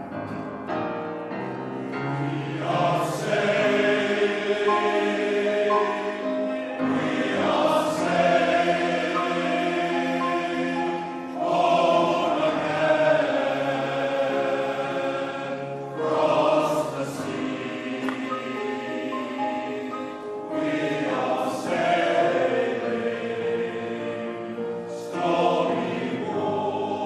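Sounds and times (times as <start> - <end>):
male voice choir singing: 2.1 - 27.0.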